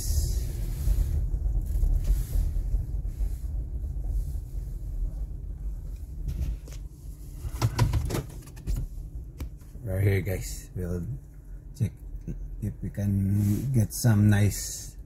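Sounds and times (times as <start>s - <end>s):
car engine and tyres rumbling: 0.0s - 14.8s.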